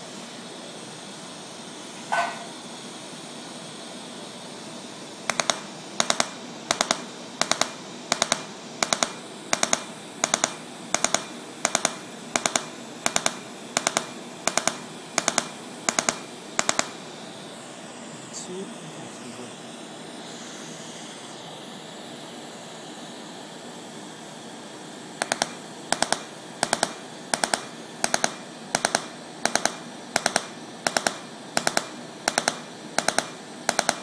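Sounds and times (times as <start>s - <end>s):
steady hiss: 0.0s - 34.0s
laser snapping clicks: 5.3s - 17.0s, 25.2s - 34.0s.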